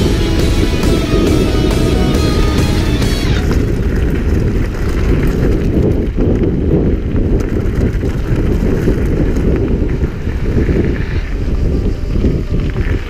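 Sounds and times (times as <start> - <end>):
wind buffeting microphone: 0.0 - 13.0
bike clicks: 3.4 - 13.0.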